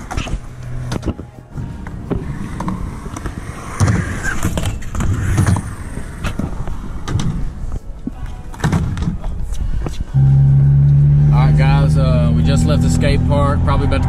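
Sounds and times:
skateboard wheels rumbling on concrete: 0:00.0 - 0:09.3.

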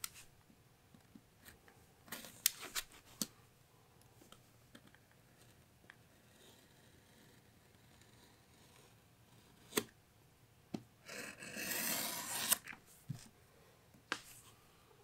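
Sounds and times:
utility knife slicing leather: 0:11.6 - 0:12.6.

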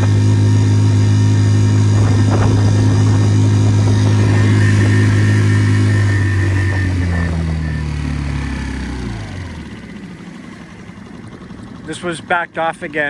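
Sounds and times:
outboard motor running: 0:00.0 - 0:13.0
water rushing past hull: 0:00.8 - 0:09.2.

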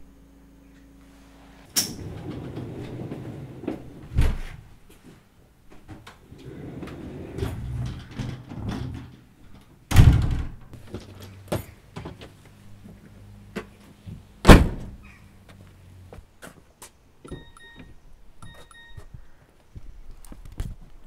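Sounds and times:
front door slamming: 0:09.9 - 0:10.6, 0:14.4 - 0:15.2.

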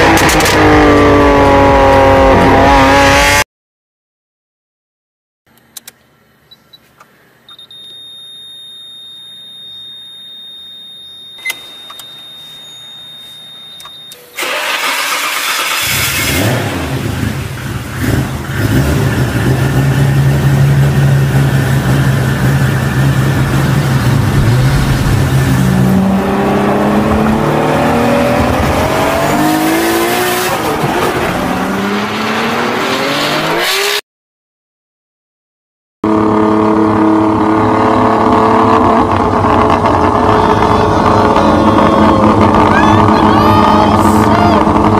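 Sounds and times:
car engine starting and revving: 0:00.0 - 0:03.4, 0:14.2 - 0:34.0, 0:36.0 - 0:44.9
thin high beep: 0:07.5 - 0:14.4.

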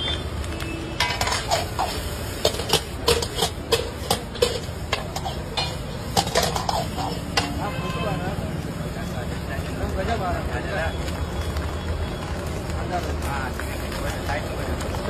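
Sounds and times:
ladle scraping iron wok: 0:00.9 - 0:08.0.

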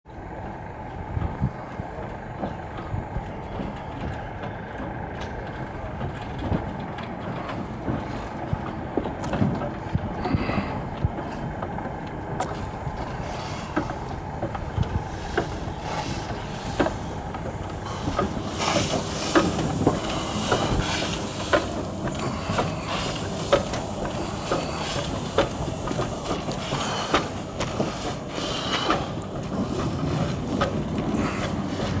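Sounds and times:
steam locomotive clanking: 0:00.1 - 0:32.0
steam hissing: 0:12.2 - 0:32.0.

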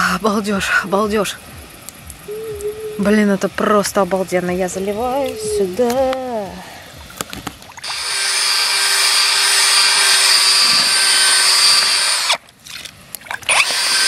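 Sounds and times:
drill motor whirring: 0:07.8 - 0:12.4, 0:13.5 - 0:14.0.

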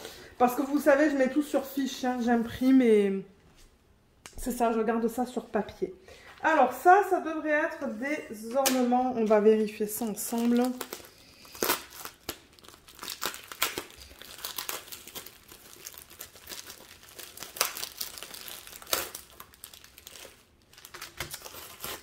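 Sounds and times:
packaging crinkling: 0:10.0 - 0:22.0.

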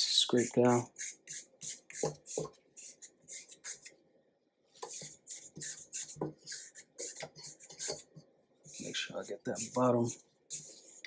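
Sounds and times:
spatula scraping metal bowl: 0:04.8 - 0:08.1, 0:08.7 - 0:11.0.

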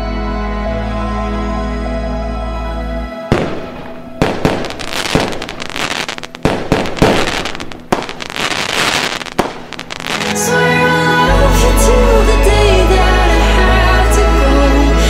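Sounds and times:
firework bangs: 0:03.3 - 0:10.5
firework crackling: 0:03.3 - 0:10.8.

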